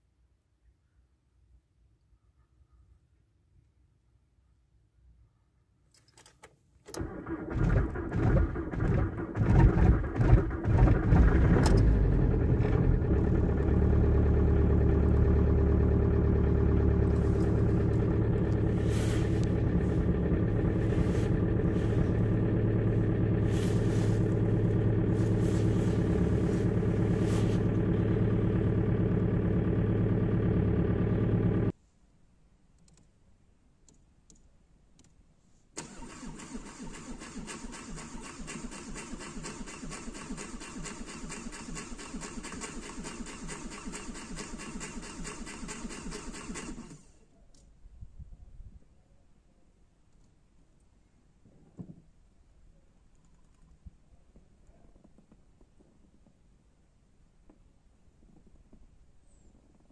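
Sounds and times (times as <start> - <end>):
diesel engine starting and idling: 6.9 - 31.7, 35.8 - 47.2.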